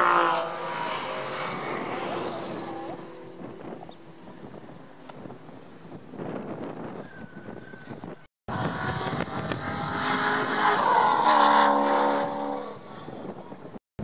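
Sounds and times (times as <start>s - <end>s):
race car engine passing by: 0.0s - 3.7s, 8.5s - 13.4s
distant cars on track: 0.0s - 6.8s, 8.5s - 13.8s.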